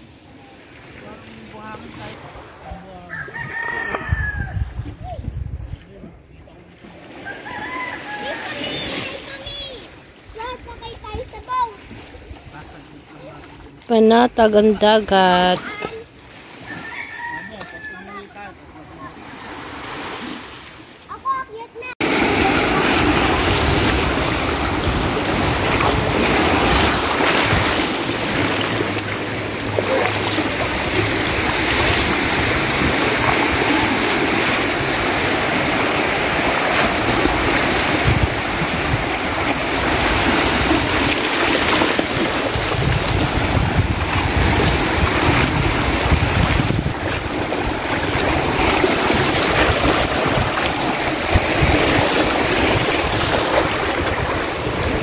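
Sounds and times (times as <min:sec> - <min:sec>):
wind buffeting microphone: 0:02.2 - 0:06.4, 0:22.2 - 0:55.0
waves washing over rocks: 0:18.4 - 0:55.0.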